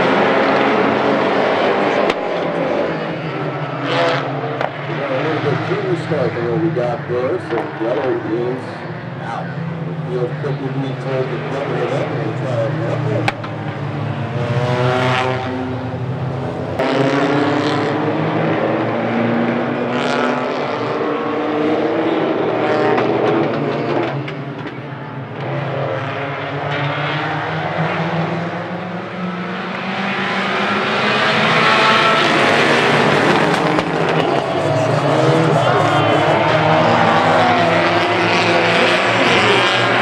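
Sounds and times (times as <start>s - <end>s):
race car engines revving: 0.0s - 40.0s.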